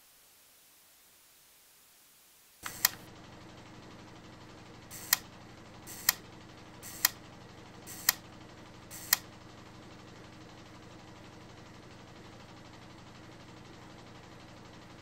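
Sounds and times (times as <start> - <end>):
camera shutter clicking: 2.6 - 3.0, 4.9 - 5.2, 5.9 - 6.2, 6.8 - 7.2, 7.9 - 8.2, 8.9 - 9.2
steady low hum: 4.8 - 10.0.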